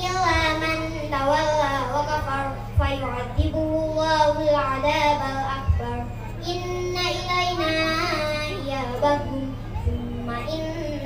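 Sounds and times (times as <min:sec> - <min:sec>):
girl chanting into a microphone: 0:00.0 - 0:11.0
low thumps: 0:02.7 - 0:06.2.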